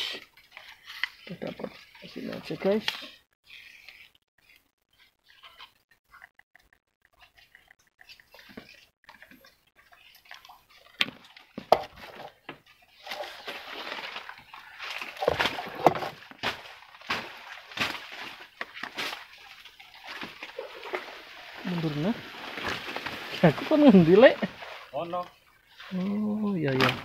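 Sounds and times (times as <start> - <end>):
water splashing and sloshing: 0.0 - 27.0.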